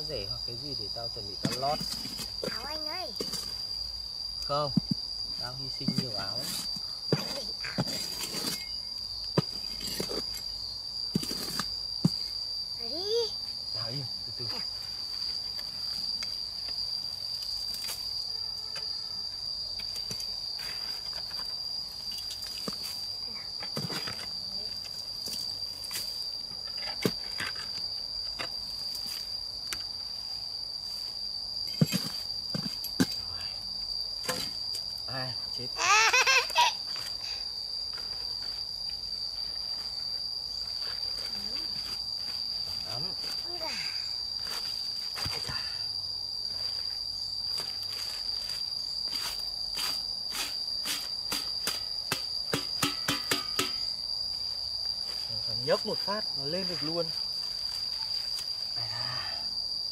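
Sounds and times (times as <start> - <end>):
high-pitched insect drone: 0.0 - 59.9
shovel scraping and knocking in dirt: 1.4 - 3.6, 5.8 - 10.5, 11.1 - 12.4, 19.8 - 23.0, 23.6 - 24.3, 25.2 - 29.3, 31.6 - 33.2, 34.2 - 34.8, 49.1 - 53.9.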